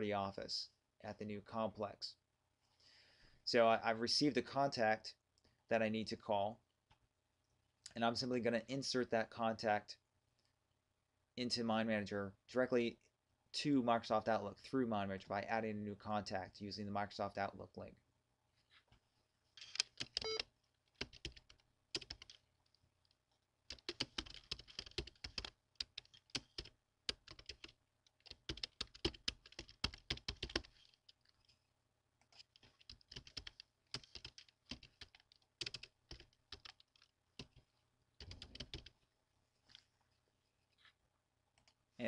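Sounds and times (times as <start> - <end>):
keyboard typing: 19.6 - 22.4, 23.7 - 31.5, 32.2 - 38.9.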